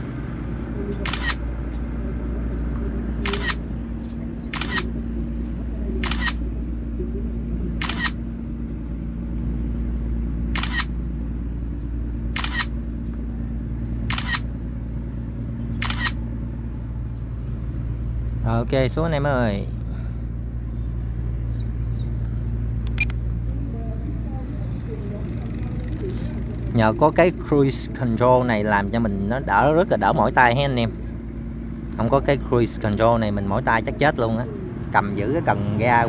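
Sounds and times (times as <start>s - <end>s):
camera shutter sound: 1.0s - 1.4s, 3.2s - 3.6s, 4.5s - 4.9s, 6.0s - 6.4s, 7.8s - 8.2s, 10.6s - 10.9s, 12.4s - 12.7s, 14.1s - 14.5s, 15.8s - 16.2s.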